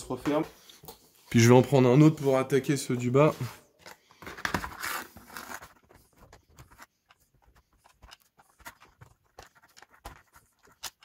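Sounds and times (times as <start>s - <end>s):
screwdriver scraping plastic: 4.7s - 11.0s.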